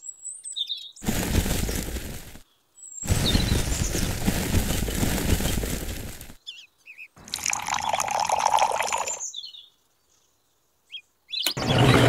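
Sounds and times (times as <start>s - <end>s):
water poured onto cement powder: 7.3s - 9.2s
short bird chirps: 10.9s - 12.0s.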